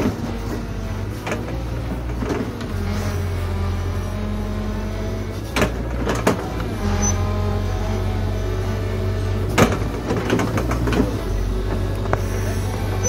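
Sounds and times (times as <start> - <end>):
excavator diesel engine under load: 0.0 - 13.0.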